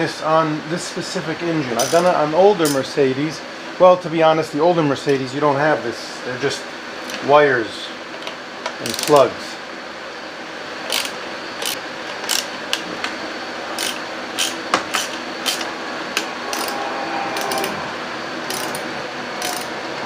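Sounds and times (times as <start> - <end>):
steady hum: 0.0 - 20.0
hand ratchet clicking: 8.8 - 9.2, 10.9 - 12.5, 13.8 - 16.8, 17.4 - 17.7, 18.5 - 19.7.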